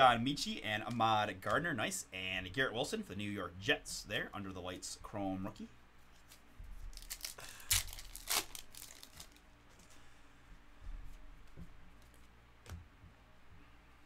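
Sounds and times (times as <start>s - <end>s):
cards rustling: 6.1s - 10.0s
foil wrapper tearing and crinkling: 6.9s - 9.4s.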